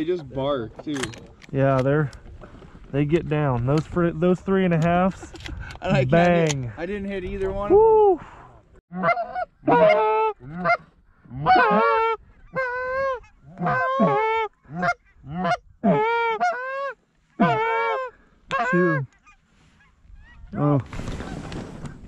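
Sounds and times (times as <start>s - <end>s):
goose honking: 8.9s - 20.7s.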